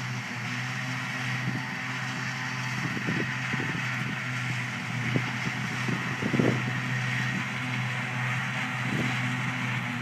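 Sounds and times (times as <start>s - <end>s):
harvester and tractor engines droning: 0.0s - 10.0s
wind buffeting microphone: 2.7s - 7.6s, 8.8s - 10.0s.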